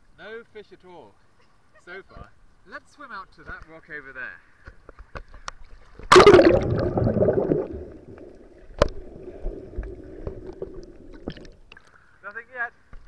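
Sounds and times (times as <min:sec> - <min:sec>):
muffled underwater water noise: 0:04.9 - 0:12.2
loud splash: 0:06.1 - 0:11.6.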